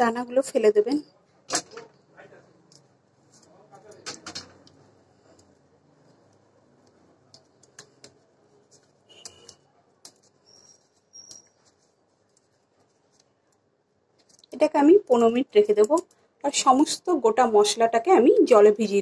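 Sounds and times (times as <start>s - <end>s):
high thin chirps: 10.4s - 11.7s.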